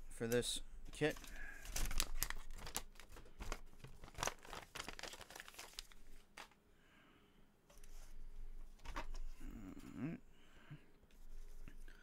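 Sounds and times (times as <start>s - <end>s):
plastic packaging crinkling: 1.1s - 6.6s.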